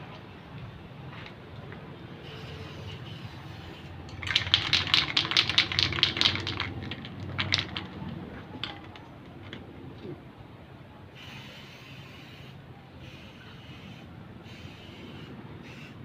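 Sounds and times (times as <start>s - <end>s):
spray can ball rattling: 2.2s - 9.6s.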